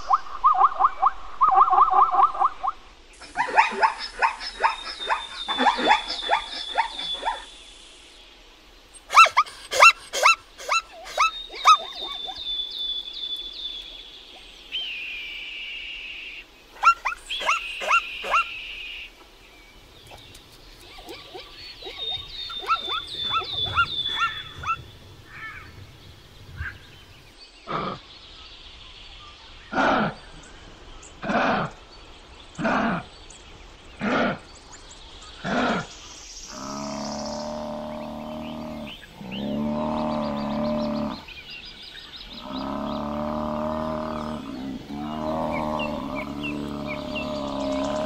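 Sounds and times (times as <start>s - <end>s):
zebra barking: 9.1s - 12.4s, 16.8s - 18.6s, 20.9s - 25.8s.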